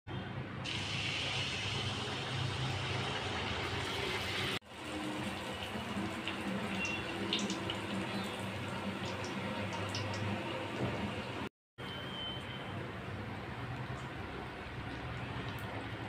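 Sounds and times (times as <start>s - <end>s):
batter sizzling in hot oil: 0.6s - 10.3s.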